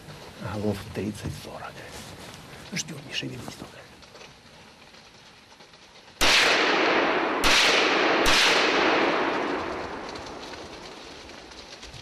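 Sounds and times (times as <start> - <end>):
gunshots echoing: 6.2 - 11.4.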